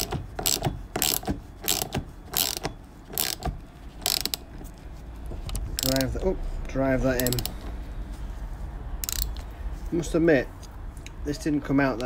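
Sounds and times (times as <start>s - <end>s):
ratchet spanner clicking: 0.0s - 4.4s, 7.2s - 7.6s, 9.0s - 9.5s.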